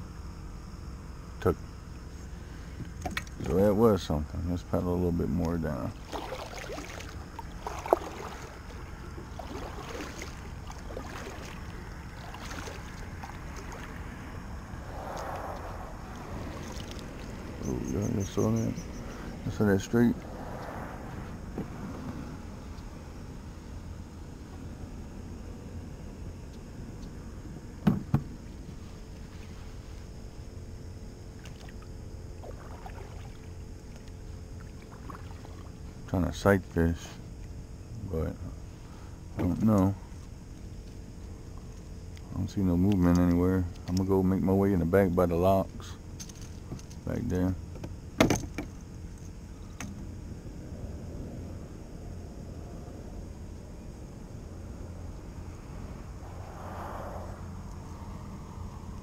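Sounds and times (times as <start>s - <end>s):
steady low rumble: 0.0s - 43.0s, 43.6s - 59.0s
paddle splashing in water: 6.0s - 14.0s, 16.1s - 17.4s, 32.4s - 34.0s, 34.6s - 35.7s
sharp knocks: 27.8s - 28.3s.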